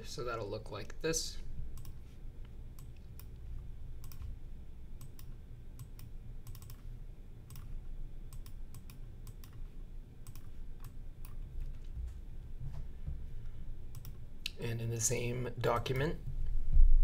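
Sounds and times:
steady low hum: 0.0 - 17.0
computer mouse clicks: 1.8 - 2.0, 4.0 - 4.3, 5.0 - 6.9, 7.5 - 12.0, 13.9 - 14.6.

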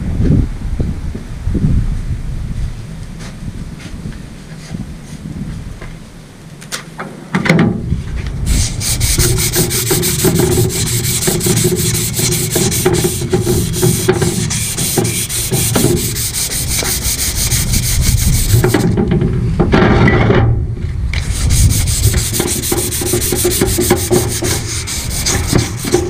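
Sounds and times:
abrasive cloth rasping on steel: 8.5 - 18.9, 21.2 - 26.0.

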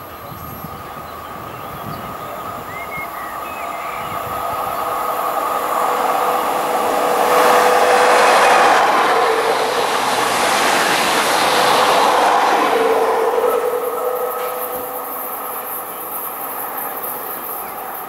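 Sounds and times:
electric train passing: 0.0 - 18.0
steady tone: 2.9 - 17.2.

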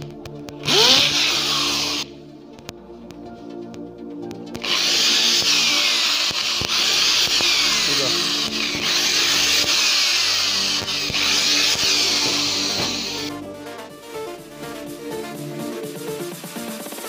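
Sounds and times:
electric drill boring: 0.6 - 2.1, 4.6 - 13.4.

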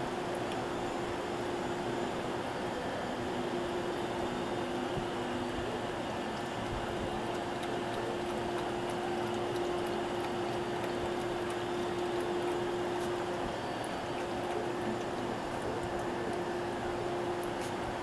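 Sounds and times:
puppy eating from metal bowl: 3.9 - 18.0.

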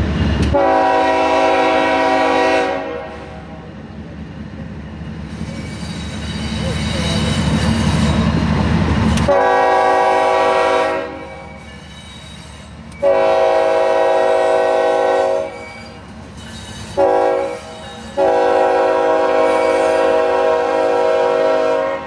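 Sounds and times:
low locomotive rumble: 0.0 - 22.0
locomotive horn blasts: 0.5 - 3.5, 9.3 - 11.5, 13.0 - 15.6, 17.0 - 22.0.

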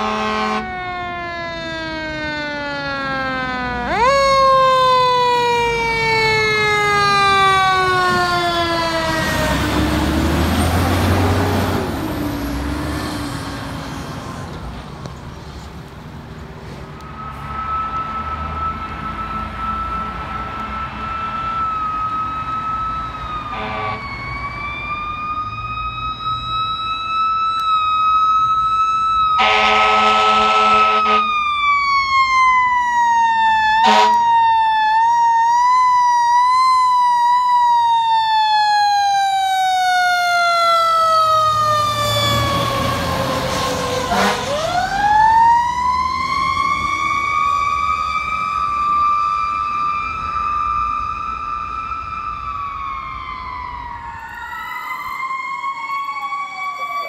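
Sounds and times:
air horn blasts: 0.0 - 0.7, 23.5 - 24.2, 29.4 - 31.3, 33.8 - 34.3, 44.0 - 44.7
fire engine siren wailing: 0.0 - 57.0.

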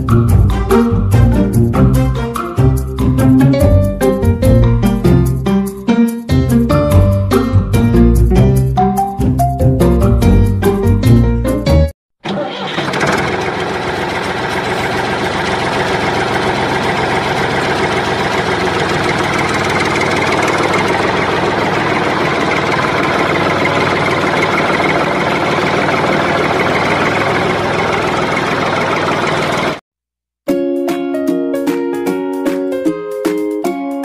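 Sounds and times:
tractor engine idling: 12.2 - 29.8.

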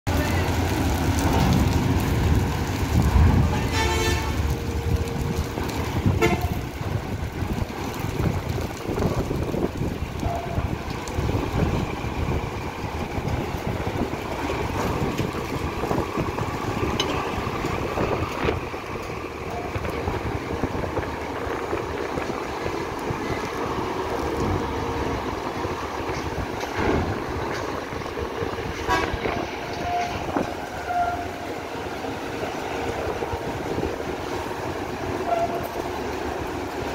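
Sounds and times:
vehicles rumbling off ramp: 0.0 - 36.9
vehicle horn: 3.5 - 4.4, 6.1 - 6.7, 28.8 - 31.3, 35.2 - 35.7.

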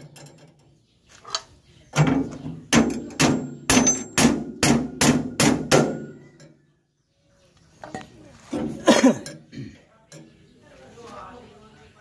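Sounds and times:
hammer striking steel punch: 2.8 - 6.2.

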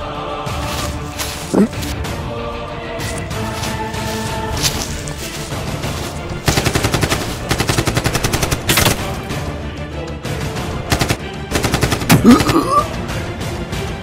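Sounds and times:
background music: 0.0 - 14.0
rapid automatic gunfire: 6.4 - 9.1, 10.9 - 12.3.

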